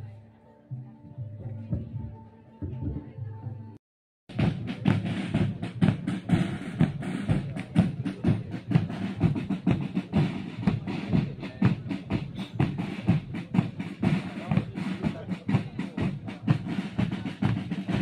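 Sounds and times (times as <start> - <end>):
marching drums parade music: 4.3 - 18.0.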